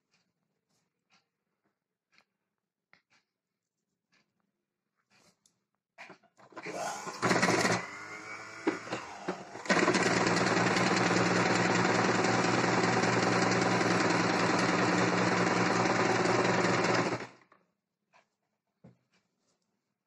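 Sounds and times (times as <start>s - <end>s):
sewing machine stitching: 6.5s - 17.4s.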